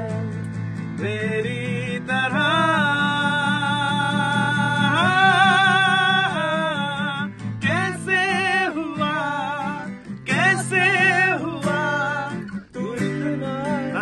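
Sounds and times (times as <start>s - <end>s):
man singing with vibrato: 0.0s - 0.4s, 1.0s - 14.0s
strummed acoustic guitar: 0.0s - 14.0s.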